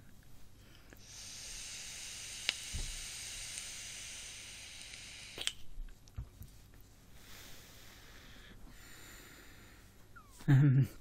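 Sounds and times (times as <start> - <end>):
vape click: 1.0 - 5.7
vape sizzling hiss: 1.0 - 5.7.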